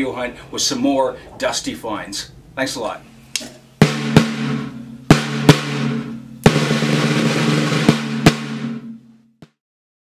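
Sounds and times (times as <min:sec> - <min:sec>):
drums ringing: 0:03.4 - 0:09.6
snare drum hits: 0:03.4 - 0:09.6
snare drum roll: 0:03.8 - 0:09.6.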